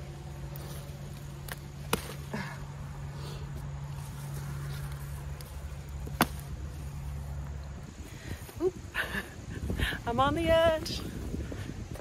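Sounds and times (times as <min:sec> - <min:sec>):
steady low hum: 0:00.0 - 0:12.0
pepper stems snapping: 0:00.4 - 0:02.7, 0:04.3 - 0:07.5.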